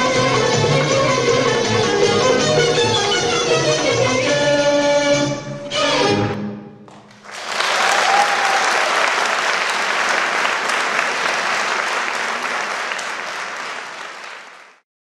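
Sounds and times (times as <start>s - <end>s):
audience applauding: 6.9s - 14.8s.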